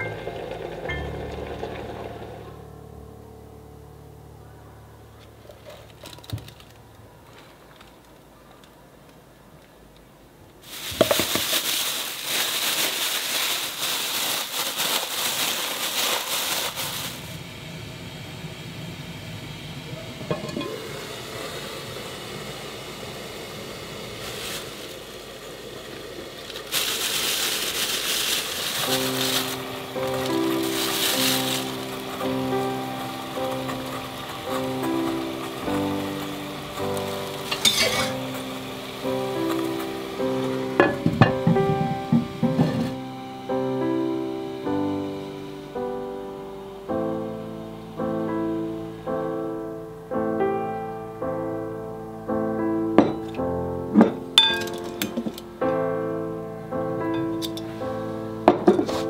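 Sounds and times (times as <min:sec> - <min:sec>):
boiling water and steam hissing: 0:00.0 - 0:02.8, 0:10.5 - 0:59.0
slow solo piano: 0:00.0 - 0:07.3, 0:26.7 - 0:59.0.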